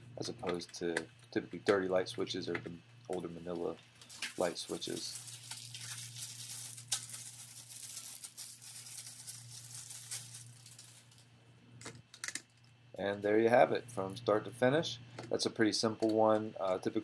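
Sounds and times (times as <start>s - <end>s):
low steady hum: 0.0s - 17.0s
hands rustling and clicking parts: 11.8s - 12.8s.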